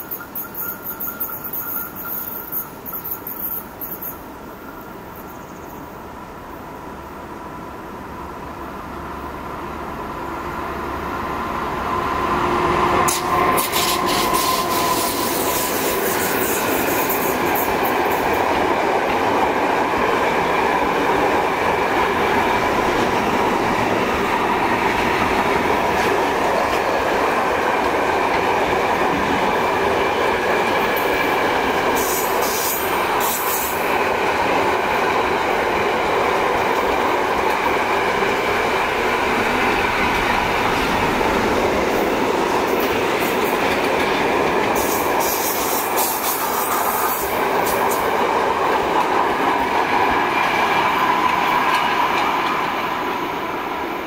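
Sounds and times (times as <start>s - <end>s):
wheel squeal: 0.0s - 4.3s
rail clicks: 0.0s - 5.6s, 11.7s - 54.0s
freight train passing: 0.0s - 54.0s.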